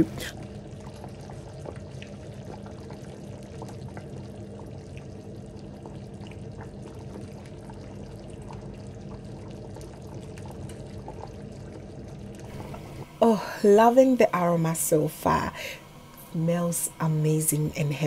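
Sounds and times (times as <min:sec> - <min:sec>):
soup bubbling with small pops: 0:00.0 - 0:13.2
steady low hum: 0:00.0 - 0:18.0.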